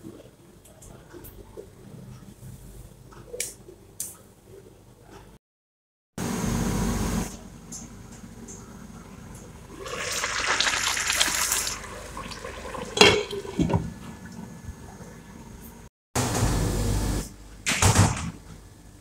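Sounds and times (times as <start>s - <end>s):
pot boiling and bubbling: 9.5s - 15.9s.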